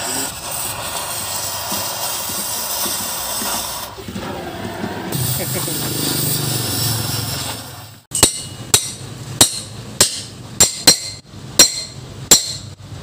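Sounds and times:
cutting torch hissing: 0.0s - 4.1s, 5.0s - 8.1s.

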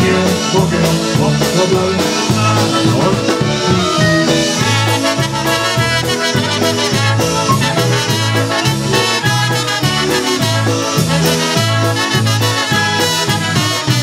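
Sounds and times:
polka band playing: 0.0s - 14.0s.

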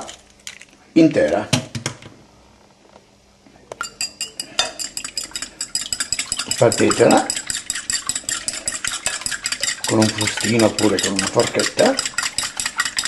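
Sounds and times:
fork whisking egg in glass bowl: 4.0s - 13.0s.

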